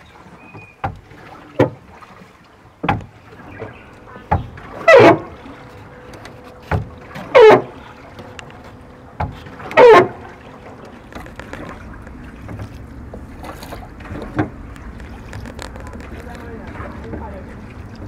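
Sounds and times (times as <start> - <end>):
wooden oar knock: 0.4 - 2.0, 2.8 - 5.3, 6.1 - 7.7, 8.5 - 10.2, 11.1 - 17.3
oar squealing: 3.3 - 11.8.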